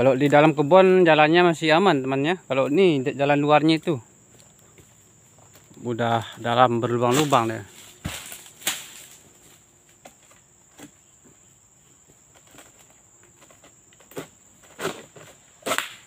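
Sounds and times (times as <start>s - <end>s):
high insect whine: 0.0s - 16.0s
sickle knocking and scraping: 7.1s - 9.2s.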